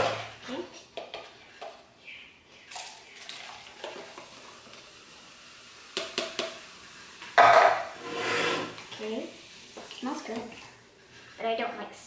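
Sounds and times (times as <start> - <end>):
soda fizzing and splashing: 2.6 - 7.4, 8.7 - 11.1.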